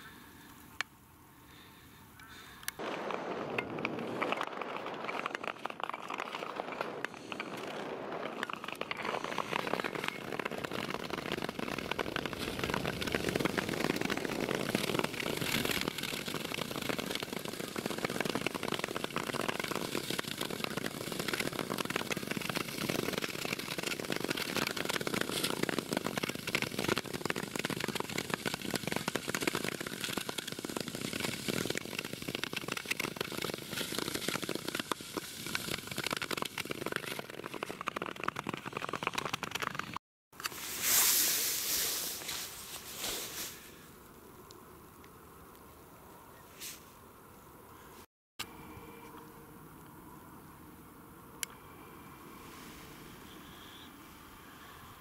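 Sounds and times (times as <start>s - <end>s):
ice skates scraping on ice: 3.7s - 43.8s.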